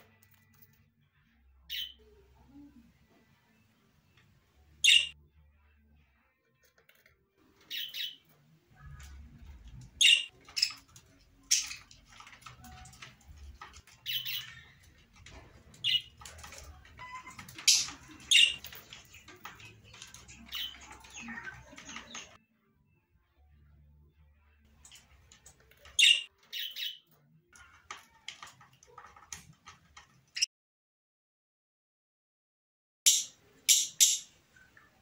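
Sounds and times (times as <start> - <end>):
birds chirping and squawking: 0.0 - 6.8, 7.4 - 23.0, 24.6 - 30.5, 33.1 - 35.0
birds chattering: 4.8 - 5.2, 7.6 - 22.4, 24.8 - 29.5.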